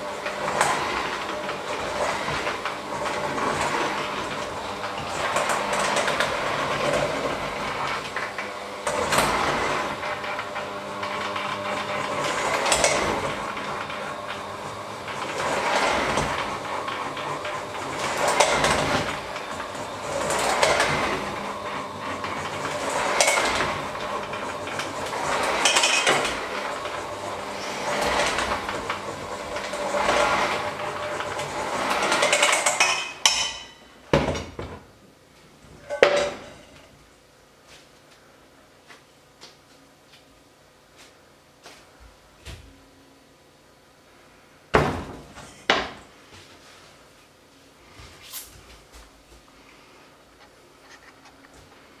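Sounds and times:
electric hand mixer kneading dough: 0.0s - 35.0s.

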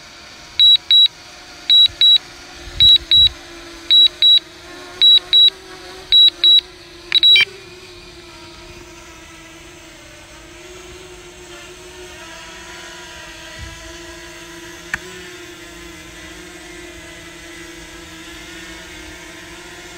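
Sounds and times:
short high electronic beeps: 0.6s - 1.1s, 1.7s - 2.2s, 2.8s - 3.3s, 3.9s - 4.4s, 5.0s - 5.5s, 6.1s - 7.4s
sharp click: 5.0s - 5.5s, 6.2s - 7.4s.

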